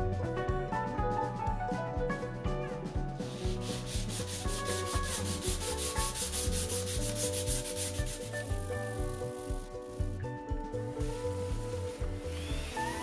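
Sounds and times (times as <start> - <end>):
light background music: 0.0 - 13.0
sandpaper scratching wood: 3.3 - 10.0.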